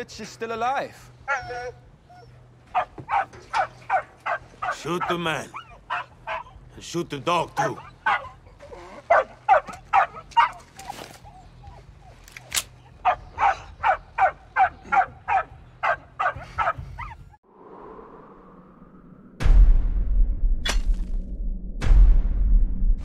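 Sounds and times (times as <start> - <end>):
dog barking: 2.7 - 6.6, 7.6 - 8.4, 9.0 - 11.1, 12.8 - 17.2.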